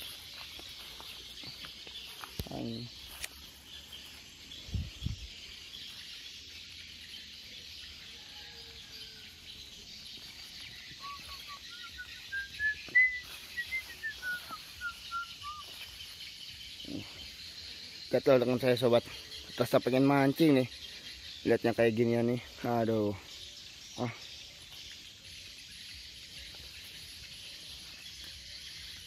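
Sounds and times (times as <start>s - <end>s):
forest insects hissing: 0.0s - 29.0s
bird whistling: 10.9s - 15.8s.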